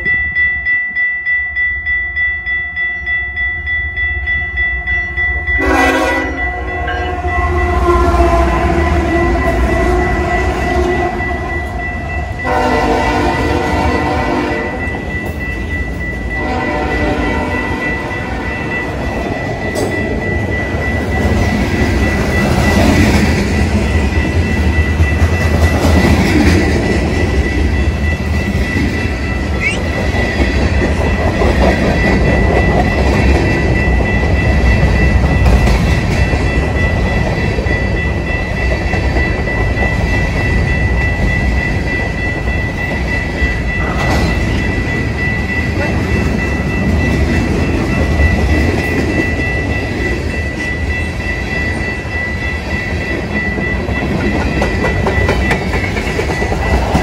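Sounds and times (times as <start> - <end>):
crossing bell ringing: 0.0 - 57.0
train wheels rumbling on rails: 3.0 - 57.0
locomotive air horn blasts: 5.6 - 10.0, 12.4 - 14.8, 16.4 - 17.7.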